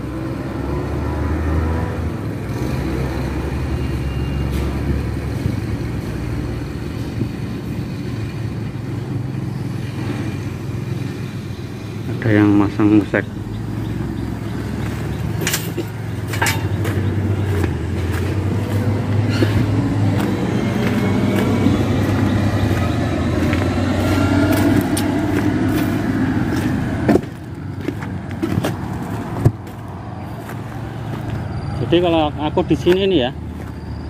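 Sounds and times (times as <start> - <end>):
vehicle engine hum: 0.0 - 34.0
tyre noise: 13.8 - 34.0.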